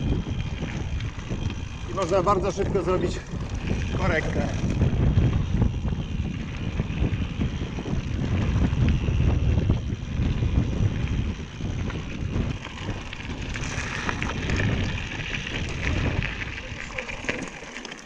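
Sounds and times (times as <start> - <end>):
bike clicks and rattles: 0.0 - 18.0
wind rumbling on microphone: 0.0 - 18.0.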